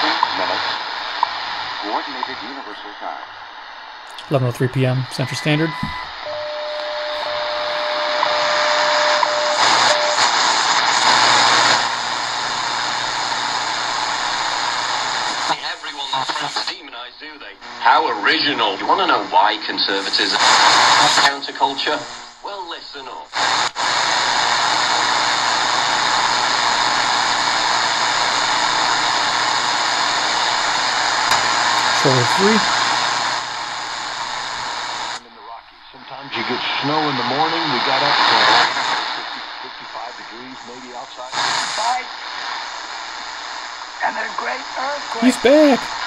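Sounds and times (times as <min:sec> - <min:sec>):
radio static hiss: 0:00.0 - 0:46.0
time signal tone with ticks: 0:05.2 - 0:10.3.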